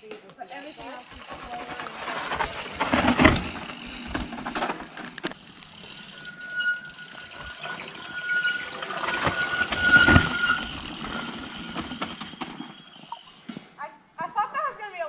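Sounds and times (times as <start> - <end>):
bike tyres skidding on dirt: 0.5 - 13.7
freewheeling hub buzz: 0.5 - 13.7.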